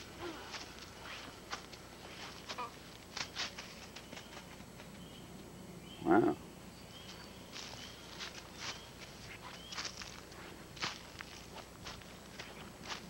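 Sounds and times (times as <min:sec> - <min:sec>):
footsteps crunching in dry leaves: 0:00.0 - 0:04.4, 0:07.0 - 0:13.0.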